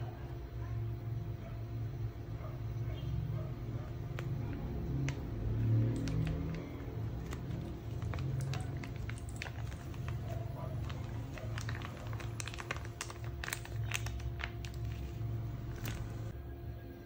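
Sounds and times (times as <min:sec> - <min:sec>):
plastic bag crinkling: 0:04.0 - 0:16.4.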